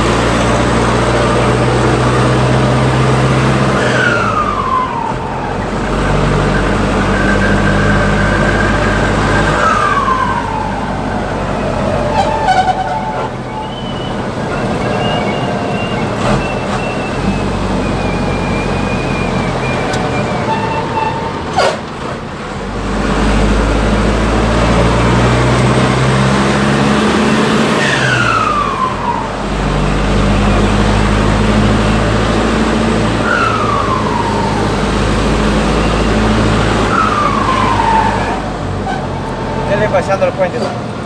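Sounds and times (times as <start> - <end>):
diesel truck engine: 0.0 - 41.0
turbo whistling: 3.8 - 21.8, 33.0 - 40.2.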